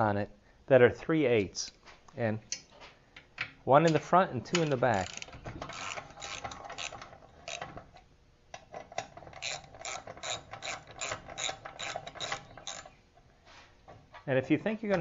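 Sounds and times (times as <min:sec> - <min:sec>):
socket ratchet clicking: 0:04.6 - 0:07.7, 0:09.0 - 0:13.0.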